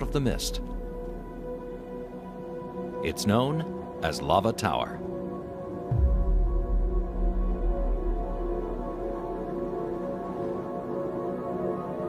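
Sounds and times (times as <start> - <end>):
ambient music held notes: 0.0 - 12.0
deep low drone: 5.2 - 12.0.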